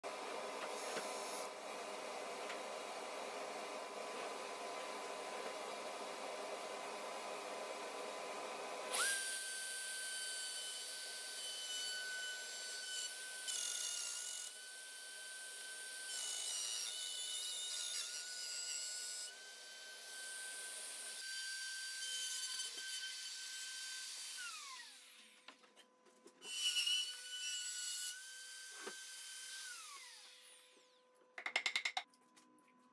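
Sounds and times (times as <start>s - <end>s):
router cutting wood: 0.2s - 25.4s, 26.5s - 31.0s
router motor whine: 7.4s - 14.7s.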